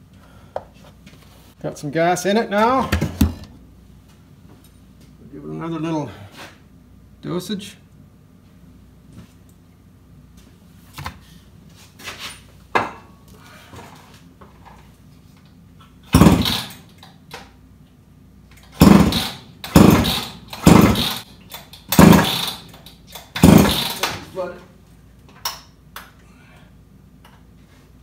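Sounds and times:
chainsaw engine bursts: 16.1s - 16.8s, 18.7s - 21.3s, 21.9s - 24.4s.

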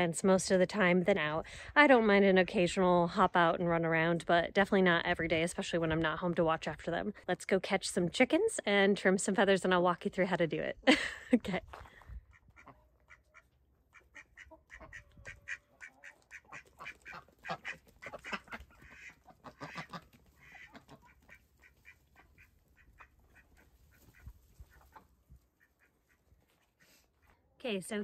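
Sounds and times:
chickens clucking: 11.7s - 27.3s.

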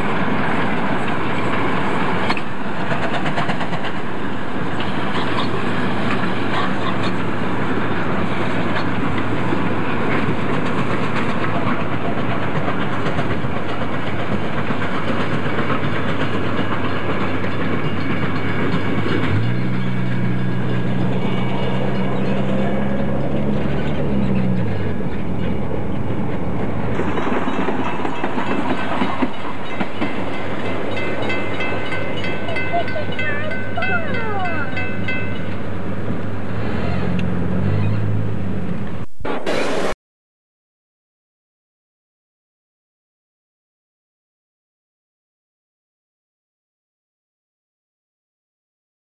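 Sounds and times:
steam train rail clatter: 0.0s - 33.9s
car road noise: 18.2s - 27.4s, 32.4s - 40.0s.

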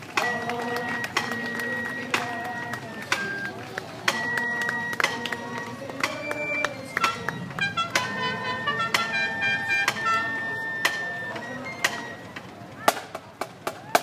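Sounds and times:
marching band percussion strikes: 0.0s - 14.0s.

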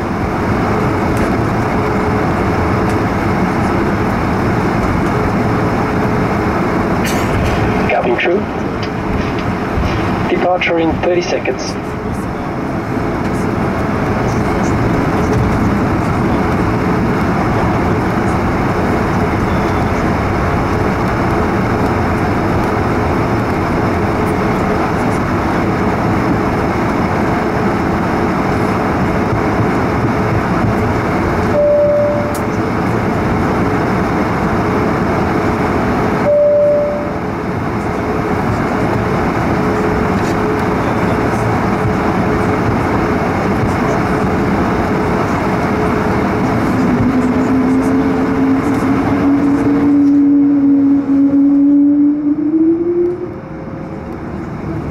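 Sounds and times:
jet engine rumble and hum: 0.0s - 54.9s
short single-pitch beeps: 31.5s - 32.4s, 36.3s - 37.2s.

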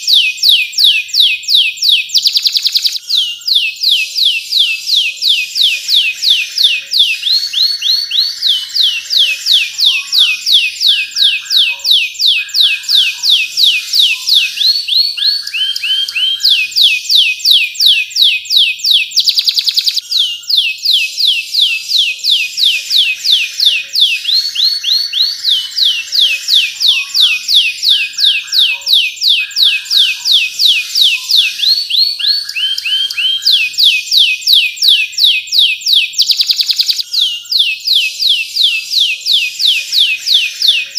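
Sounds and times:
canary singing: 0.0s - 40.9s.

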